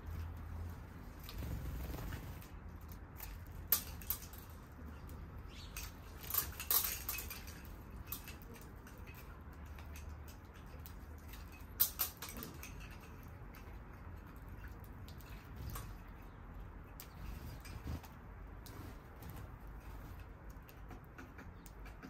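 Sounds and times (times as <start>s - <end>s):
low city hum: 0.0s - 22.0s
birds pecking seed taps: 16.9s - 22.0s.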